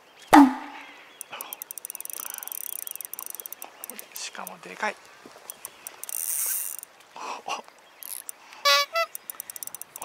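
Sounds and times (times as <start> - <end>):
fishing reel drag clicking: 1.2 - 4.6, 5.4 - 6.9, 8.0 - 10.0.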